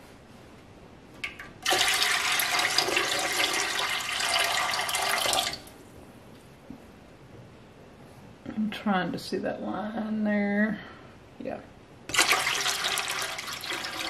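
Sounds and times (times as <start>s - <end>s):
water splashing into metal pot: 12.1s - 14.0s.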